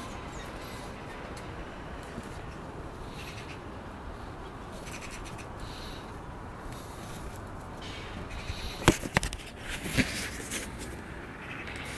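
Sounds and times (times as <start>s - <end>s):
camera rubbing against clothing: 8.4s - 11.0s.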